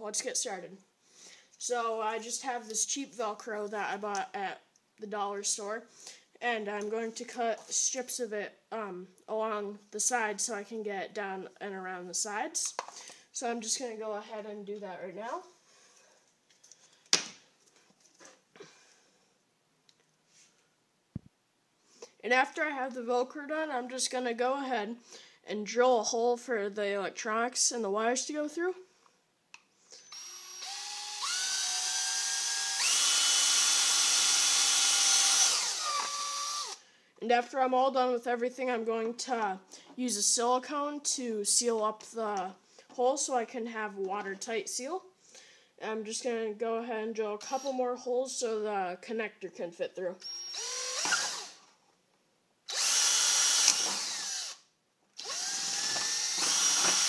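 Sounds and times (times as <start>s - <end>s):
power drill drilling plastic: 29.9s - 36.8s, 50.2s - 51.6s, 52.7s - 54.6s, 55.2s - 57.0s.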